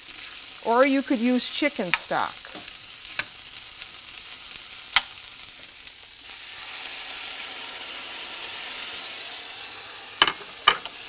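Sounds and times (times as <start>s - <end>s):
vegetables sizzling in a pan: 0.0s - 11.0s
spatula tapping a pan: 10.2s - 10.9s.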